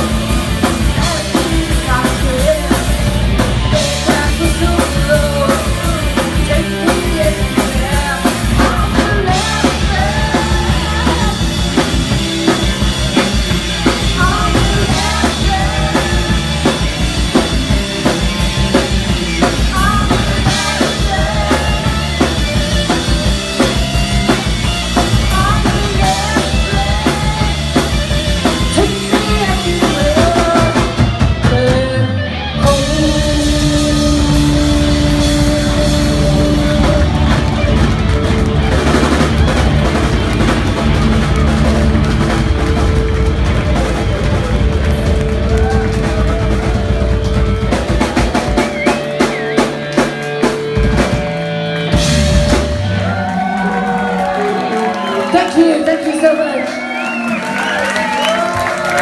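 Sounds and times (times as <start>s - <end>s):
drum kit: 0.0s - 55.6s
bass guitar: 0.0s - 59.0s
electric guitar: 0.0s - 59.0s
woman singing into a microphone: 0.9s - 3.0s, 3.8s - 11.4s, 14.2s - 16.4s, 19.7s - 22.2s, 25.3s - 27.7s, 28.7s - 37.0s.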